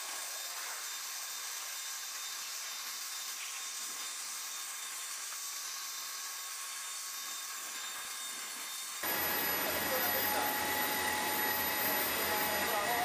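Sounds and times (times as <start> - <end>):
hydraulic machinery hiss: 9.0 - 13.0.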